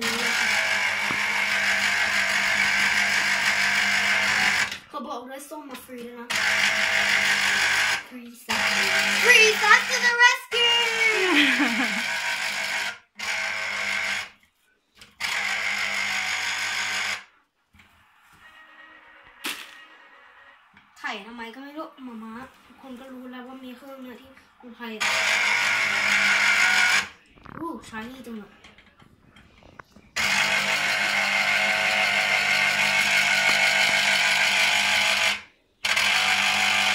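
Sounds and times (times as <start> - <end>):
electric citrus juicer motor: 0.0 - 4.9, 6.3 - 14.4, 15.0 - 20.9, 25.0 - 27.2, 30.2 - 36.9.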